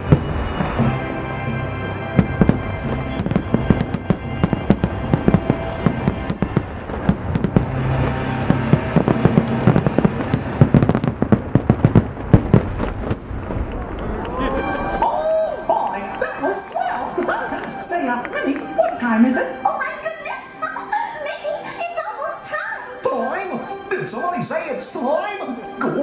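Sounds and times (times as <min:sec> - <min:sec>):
fireworks bangs and crackles: 0:00.0 - 0:14.3
music: 0:00.0 - 0:26.0.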